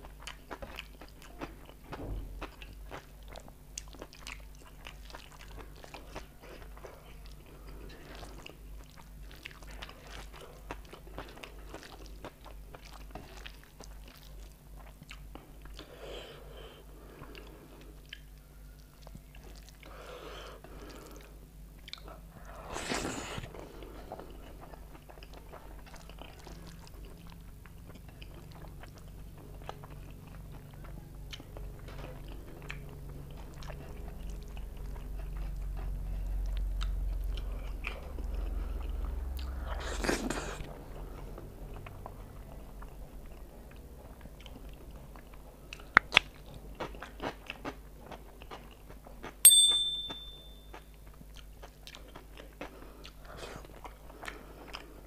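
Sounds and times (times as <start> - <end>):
wet chewing and lip smacks: 2.4 - 15.8, 17.3 - 19.9, 24.1 - 49.4.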